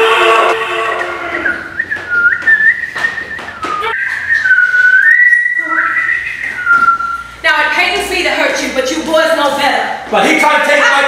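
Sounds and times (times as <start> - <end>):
woman whistling a tune: 1.4 - 7.3.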